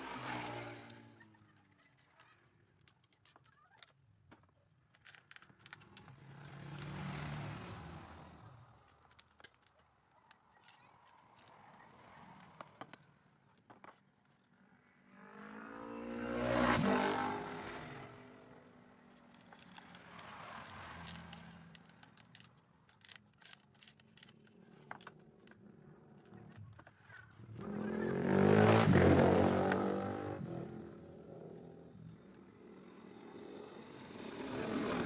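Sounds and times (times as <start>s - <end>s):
motor vehicles passing by: 0.0s - 2.0s, 5.6s - 9.3s, 14.6s - 35.0s
bamboo strips clicking and scraping: 0.1s - 14.5s, 18.6s - 27.8s.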